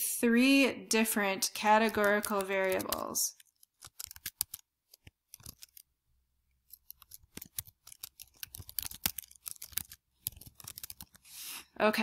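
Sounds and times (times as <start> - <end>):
computer keyboard typing: 1.6 - 5.9, 6.6 - 11.3.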